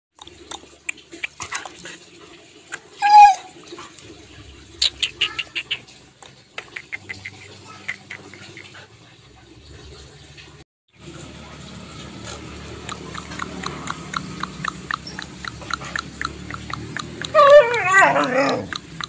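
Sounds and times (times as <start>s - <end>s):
sharp clicks and smacks: 12.3s - 19.0s.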